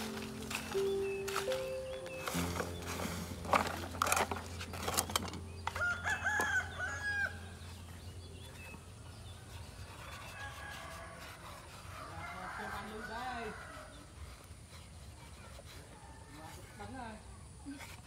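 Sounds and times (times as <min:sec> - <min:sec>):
bird calling: 0:00.0 - 0:10.4.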